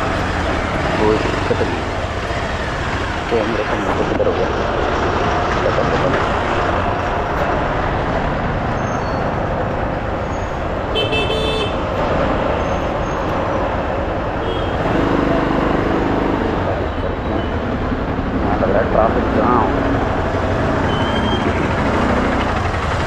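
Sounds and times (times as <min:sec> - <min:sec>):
motorcycle engine: 0:00.0 - 0:12.9, 0:13.7 - 0:23.0
street traffic noise: 0:00.0 - 0:23.0
high-pitched vehicle horn: 0:10.9 - 0:11.8.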